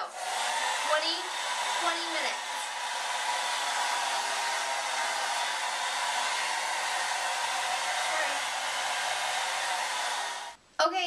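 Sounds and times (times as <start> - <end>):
blow dryer running: 0.0 - 10.6.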